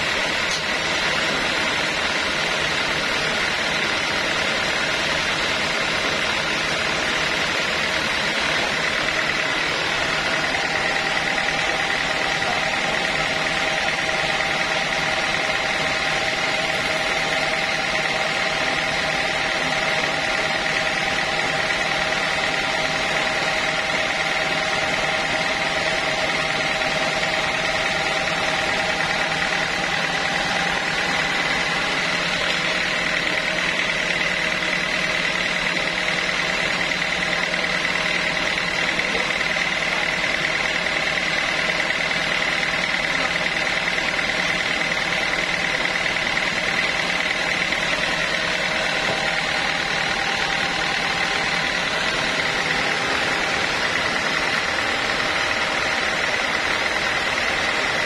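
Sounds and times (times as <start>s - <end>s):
saw blade whine: 0.0s - 58.0s
band saw machine hum: 4.8s - 35.3s, 45.6s - 58.0s.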